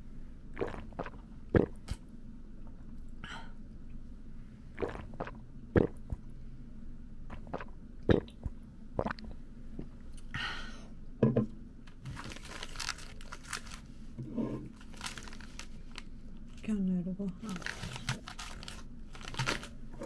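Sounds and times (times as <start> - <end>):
plastic snack bag crinkling: 12.0 - 13.9, 14.8 - 16.6, 17.4 - 19.8.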